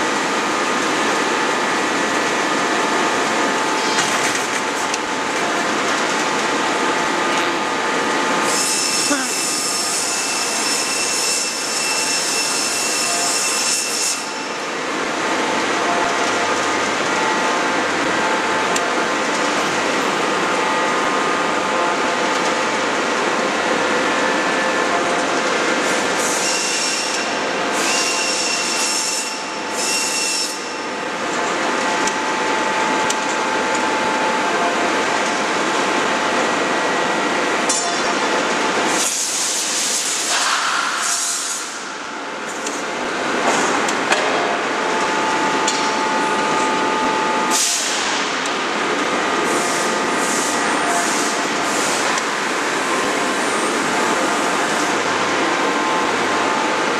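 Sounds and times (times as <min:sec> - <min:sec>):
hydraulic forging hammer running: 0:30.5 - 0:39.4, 0:42.2 - 0:56.9.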